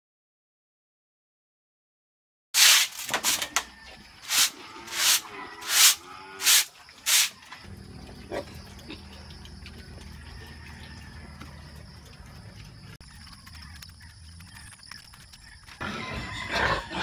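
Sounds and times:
piglets squealing: 15.8s - 17.0s.

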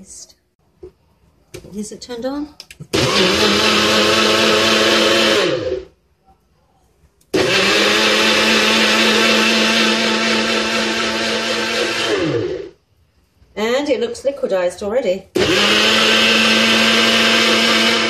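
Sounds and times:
blender motor running: 3.0s - 5.9s, 7.4s - 12.8s, 15.4s - 18.0s.

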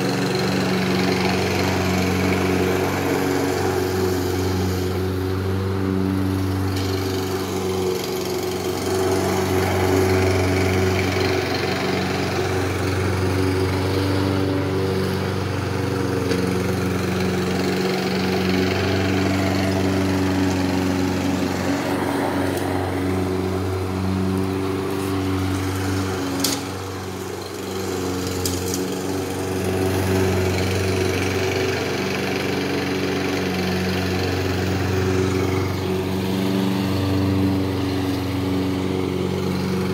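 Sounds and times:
lawn mower engine running: 0.0s - 39.9s.

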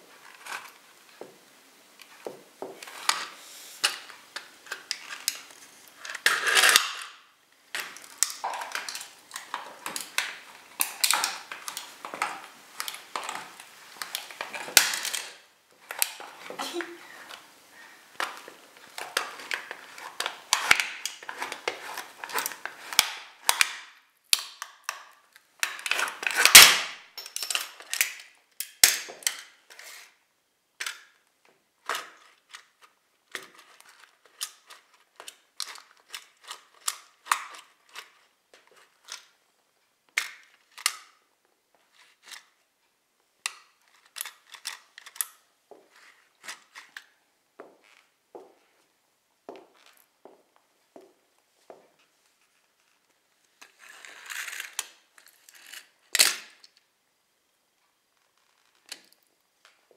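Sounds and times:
cracks and crunches: 3.9s - 16.7s.

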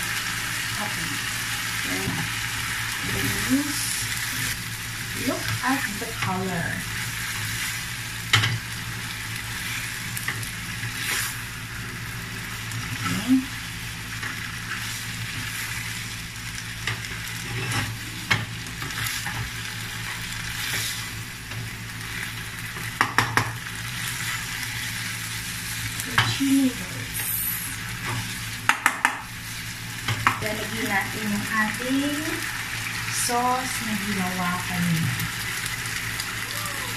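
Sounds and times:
noodles sizzling in a frying pan: 0.0s - 36.9s
spatula knocking against pan: 28.7s - 29.2s.

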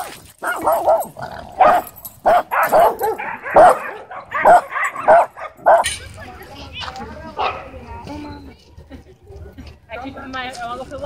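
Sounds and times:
small dogs barking: 0.4s - 5.9s.

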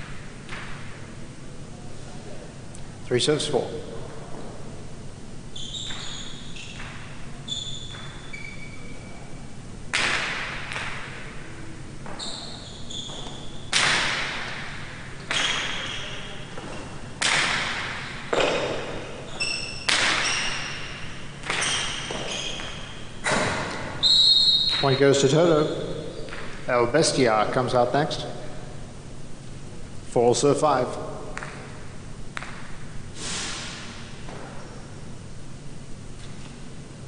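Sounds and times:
ball striking walls echoing: 0.0s - 1.6s, 2.4s - 35.3s
ball hitting wicker baskets: 9.9s - 11.4s, 13.1s - 19.1s, 19.8s - 20.7s.

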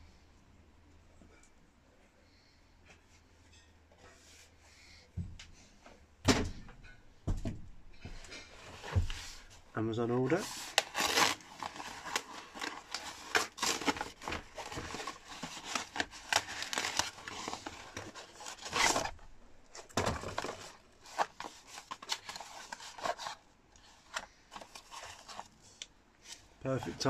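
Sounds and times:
light crinkling of wrapping: 8.2s - 27.0s
cardboard box being torn open: 10.5s - 19.1s.

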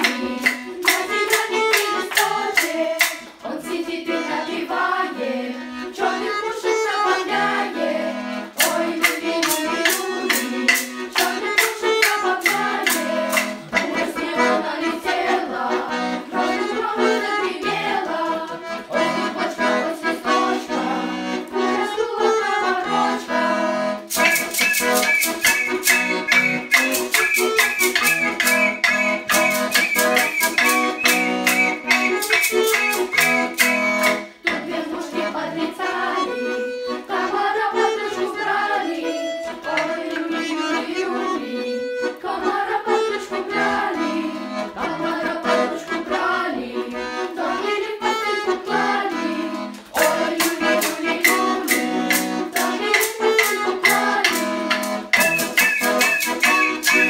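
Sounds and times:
girls choir singing: 0.0s - 24.0s, 25.3s - 54.8s
button accordion: 0.0s - 57.0s
high folk whistles: 24.2s - 34.3s, 55.1s - 57.0s.

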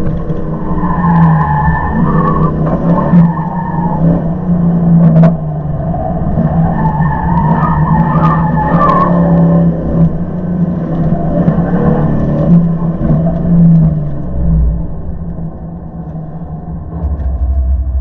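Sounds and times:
low rumble: 12.6s - 18.0s.

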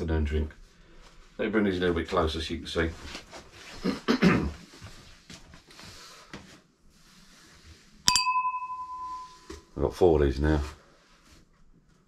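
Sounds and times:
beer glasses clinking: 8.1s - 9.6s.

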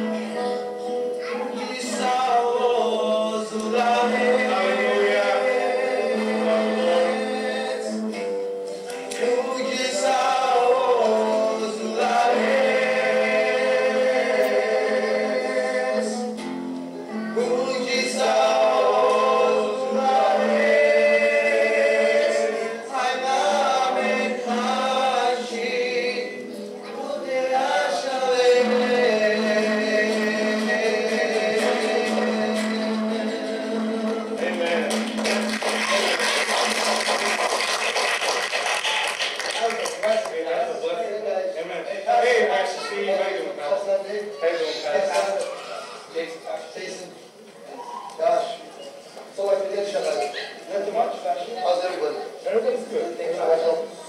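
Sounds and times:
voices singing gospel song: 0.0s - 38.4s
acoustic guitar: 0.0s - 39.7s.

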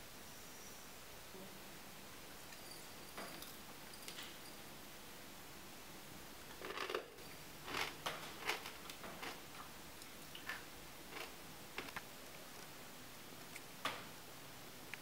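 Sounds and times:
dry food flakes crunching: 6.6s - 7.0s, 7.6s - 9.7s, 10.4s - 12.7s.

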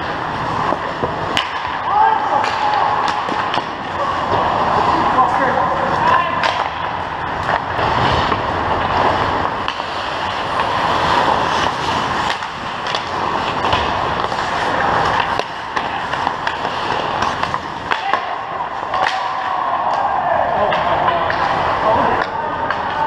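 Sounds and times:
skates scraping ice: 0.0s - 23.0s
sticks and puck clacking: 0.0s - 23.0s.

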